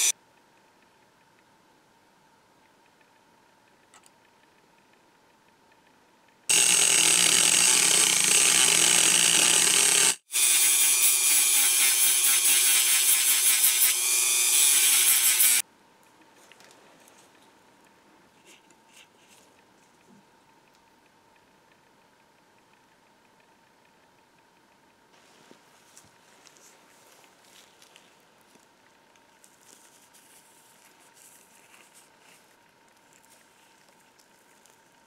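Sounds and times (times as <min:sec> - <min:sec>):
rotary tool cutting steel: 0:06.5 - 0:15.6.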